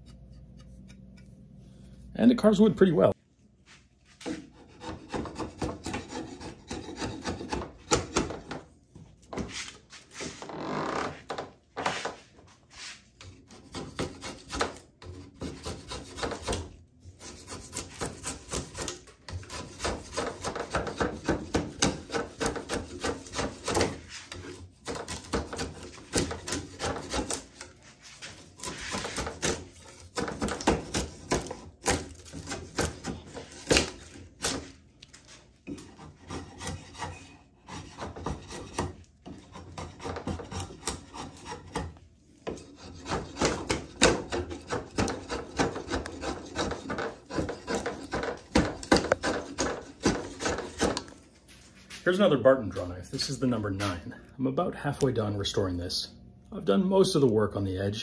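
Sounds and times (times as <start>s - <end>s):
drawknife scraping wood: 4.1s - 8.6s, 11.8s - 51.2s.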